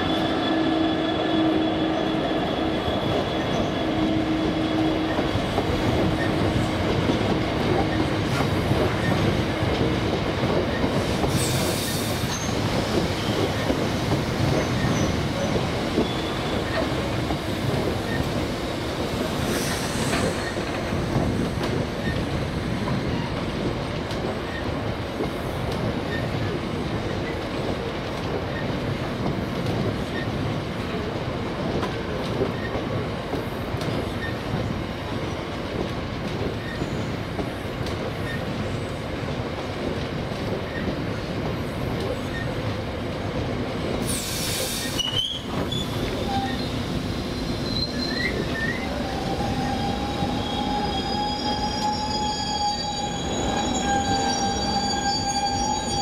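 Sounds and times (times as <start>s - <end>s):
train wheels rumbling on rails: 0.0s - 56.0s
high squealing tones: 47.4s - 56.0s.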